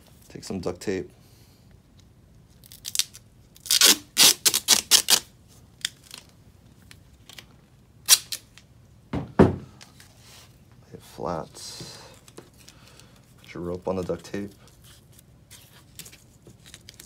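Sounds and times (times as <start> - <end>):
duct tape ripping: 2.5 - 6.4, 8.0 - 8.6.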